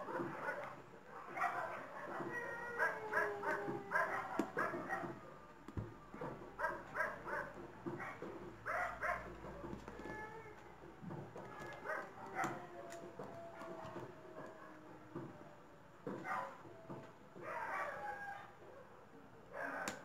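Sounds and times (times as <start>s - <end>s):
dog yipping and whimpering: 0.1s - 5.1s.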